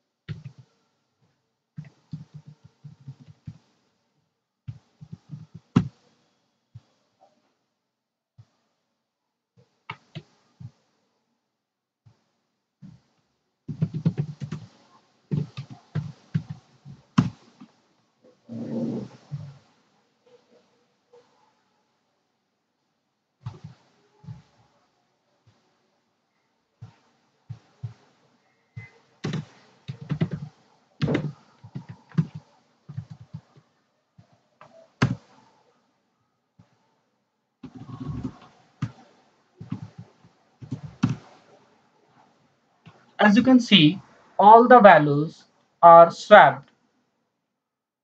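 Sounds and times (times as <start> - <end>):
keyboard keys clicking: 13.7 - 14.7
typing on computer keyboard: 13.7 - 16.6, 28.8 - 33.5.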